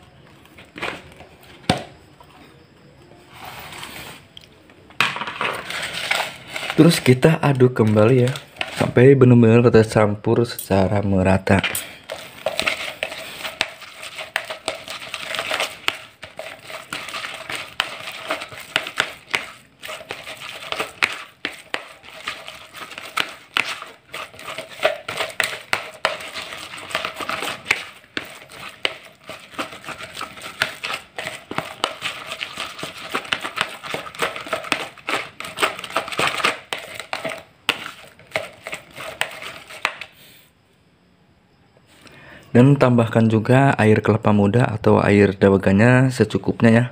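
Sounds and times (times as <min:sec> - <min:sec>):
paddle scraping and squishing dough: 0:00.0 - 0:02.6, 0:03.2 - 0:04.4, 0:05.3 - 0:09.1, 0:10.7 - 0:40.2.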